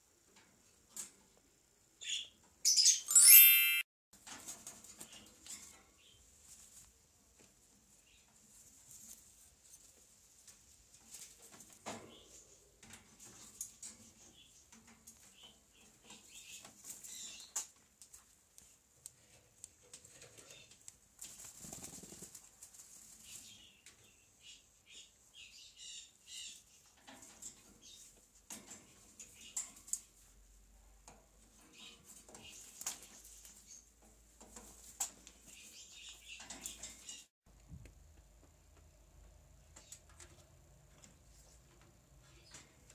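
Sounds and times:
bird chirps: 0:02.0 - 0:03.8
parakeet flapping wings in cage: 0:21.2 - 0:22.5
beak and claws on cage bars: 0:31.0 - 0:37.2.

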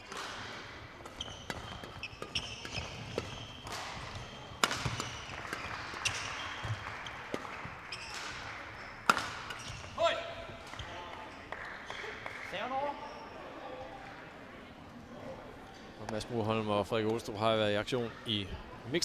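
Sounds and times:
rackets striking shuttlecock: 0:00.0 - 0:10.0
shoes squeaking on floor: 0:01.1 - 0:11.4, 0:13.0 - 0:13.4.

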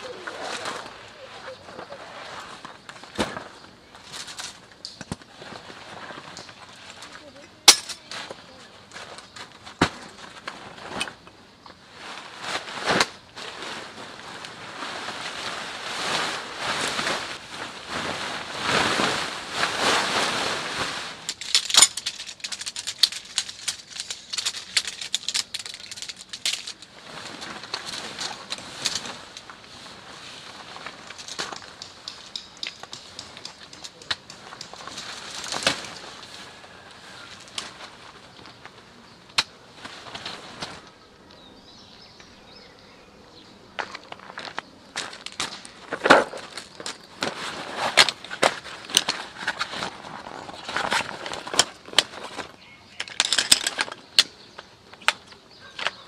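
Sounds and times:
tent fabric rustling and flapping: 0:00.0 - 0:04.6, 0:11.8 - 0:39.0, 0:39.6 - 0:41.0, 0:44.1 - 0:52.6
crunches on gravel: 0:12.0 - 0:42.9, 0:43.7 - 0:56.0.

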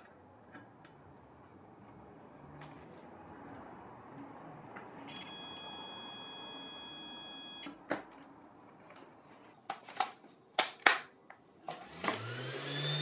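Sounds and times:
multimeter continuity beep: 0:05.1 - 0:07.7.

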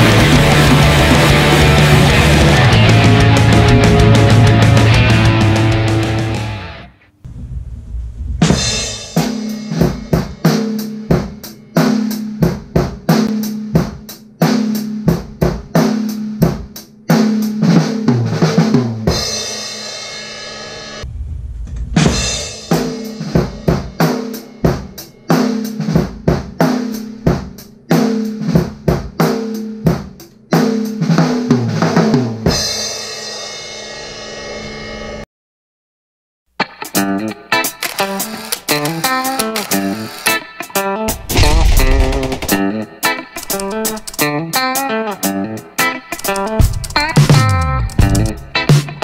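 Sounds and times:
drum kit beat: 0:00.0 - 0:06.6, 0:08.4 - 0:19.6, 0:22.0 - 0:32.8, 0:36.6 - 0:49.0
snare drum strokes: 0:41.1 - 0:44.2.

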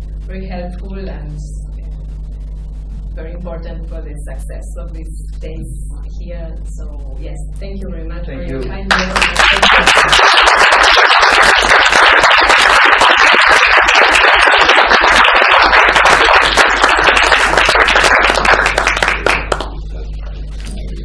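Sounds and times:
low steady hum: 0:00.0 - 0:21.0
audience applauding: 0:08.9 - 0:19.8.

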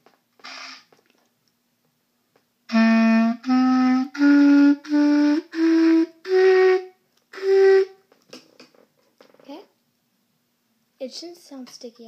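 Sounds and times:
clarinet playing a scale: 0:02.7 - 0:08.0
person talking: 0:11.0 - 0:12.0.

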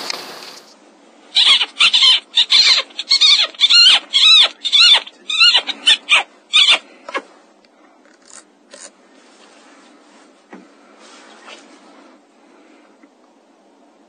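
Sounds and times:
predator call squeals: 0:01.4 - 0:07.2.

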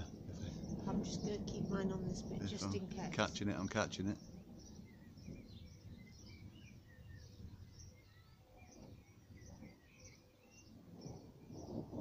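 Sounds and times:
low outdoor rumble: 0:00.0 - 0:07.8
small birds chirping: 0:00.0 - 0:12.0
thunder rumbling: 0:00.0 - 0:12.0.

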